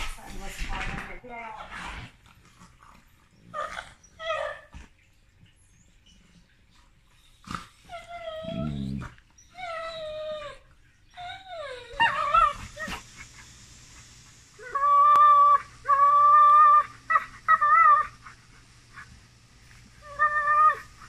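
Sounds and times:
dogs whining: 3.3 - 5.1, 7.1 - 13.5, 14.6 - 19.1, 20.0 - 21.0
dog growling: 7.4 - 10.6.

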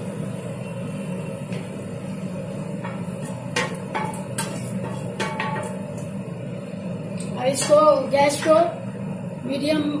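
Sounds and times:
sugar water boiling in a wok: 0.0 - 10.0
metal utensil knocking on pan: 2.8 - 5.8.

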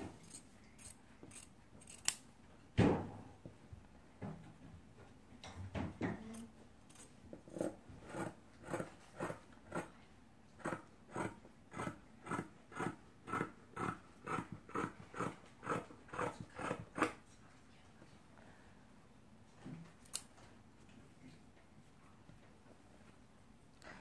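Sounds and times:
scissors snipping fabric: 0.2 - 2.2.

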